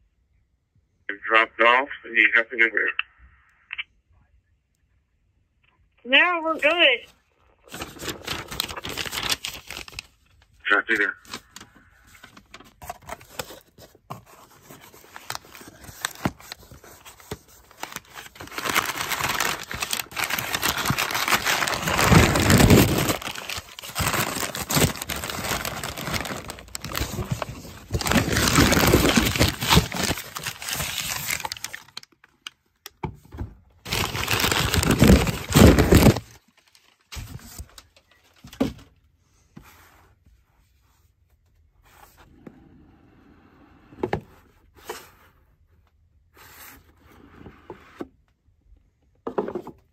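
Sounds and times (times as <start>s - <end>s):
packing paper crinkling: 7.5s - 32.2s, 33.9s - 38.5s.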